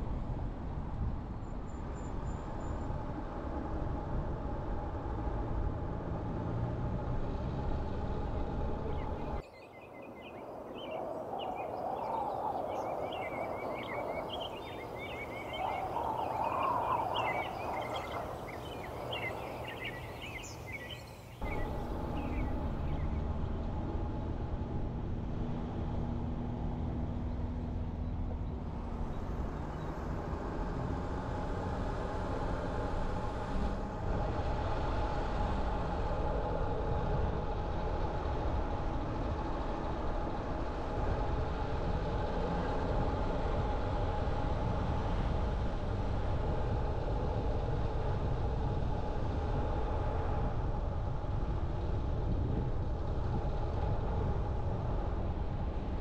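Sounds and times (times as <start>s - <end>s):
car road and engine noise: 0.0s - 56.0s
faint hum: 7.9s - 24.8s.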